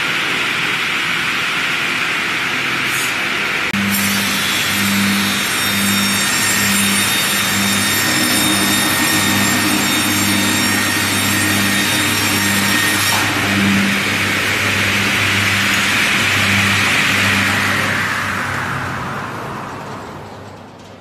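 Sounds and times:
saw motor hum: 3.7s - 20.3s
saw blade cutting wood: 3.8s - 18.8s.

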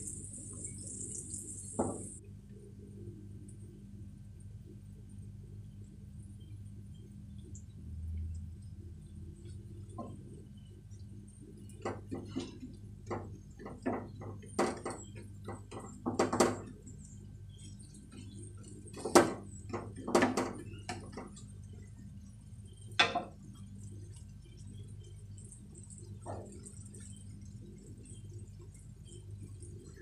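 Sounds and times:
low steady hum: 0.0s - 30.0s
spatula tapping and scraping pan: 11.8s - 16.7s.

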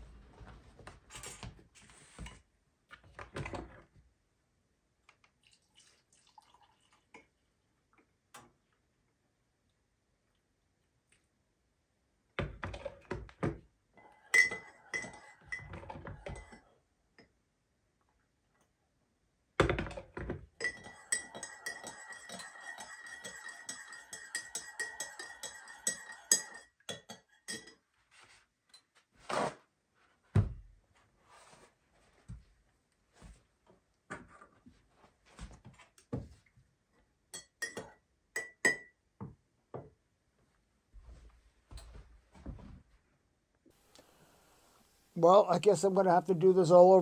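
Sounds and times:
spoon clinking in ceramic mug: 14.3s - 16.6s, 20.6s - 27.8s, 37.4s - 39.0s.

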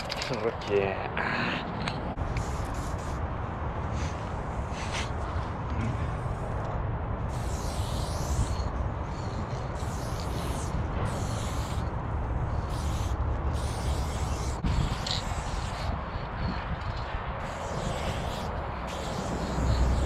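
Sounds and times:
spray can hissing: 2.3s - 3.2s, 7.3s - 11.8s, 12.5s - 15.9s, 16.9s - 20.0s.

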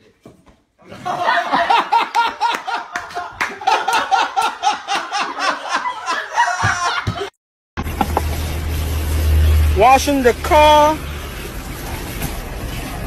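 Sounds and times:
person laughing: 0.8s - 7.3s.

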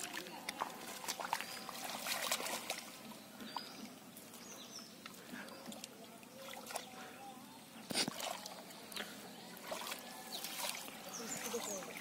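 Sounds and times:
hands splashing in muddy water: 0.0s - 3.0s, 9.6s - 12.0s.

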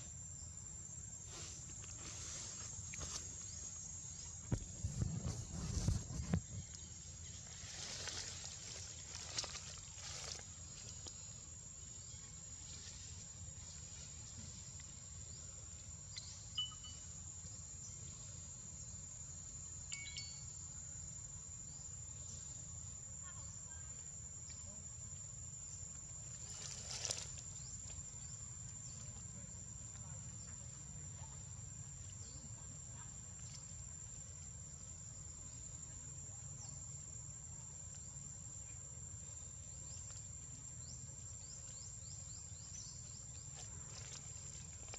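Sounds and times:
faint chirps and clicks: 15.7s - 17.0s, 23.2s - 26.2s, 32.0s - 35.0s, 37.4s - 38.8s, 39.5s - 44.2s
high-pitched insect drone: 16.1s - 23.8s.

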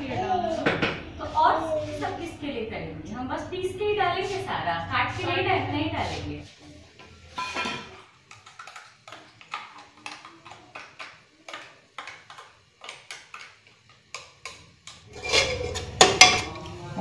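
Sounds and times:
metal spoon clinking on pots: 7.3s - 16.8s.

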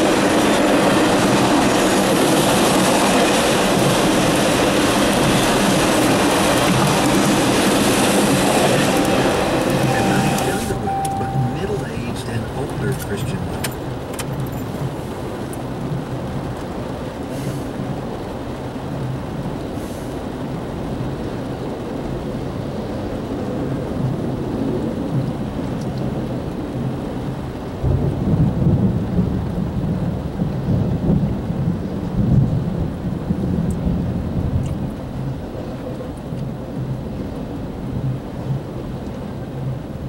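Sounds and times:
freight train rumbling by: 0.0s - 13.6s
rain falling: 0.0s - 40.0s.

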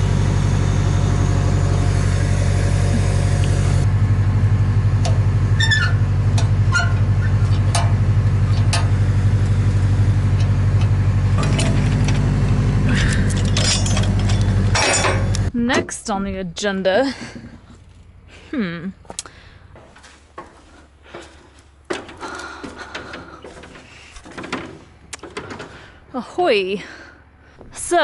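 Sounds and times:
backhoe diesel engine running: 0.0s - 27.6s
light metal clanks: 13.1s - 16.1s.

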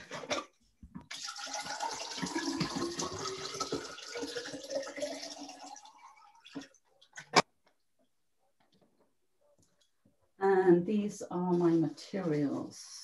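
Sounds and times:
water pouring into vase: 1.1s - 6.8s.

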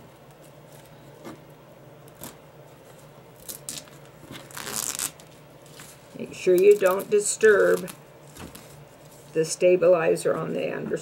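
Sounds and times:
plastic film tearing: 2.1s - 2.4s, 3.4s - 8.8s
plastic film crackles: 2.1s - 9.4s.

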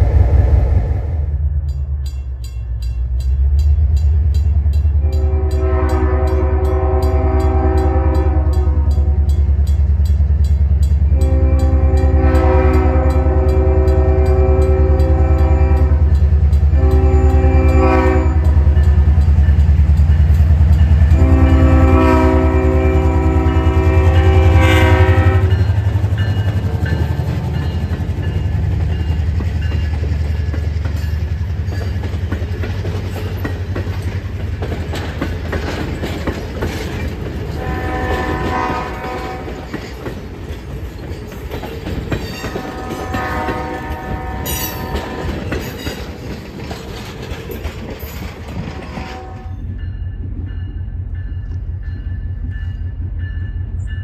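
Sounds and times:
train cars rolling by: 0.0s - 54.0s
locomotive air horn: 5.0s - 9.4s, 11.1s - 19.0s, 21.0s - 25.7s, 37.5s - 39.8s, 42.5s - 45.6s, 48.7s - 49.6s.

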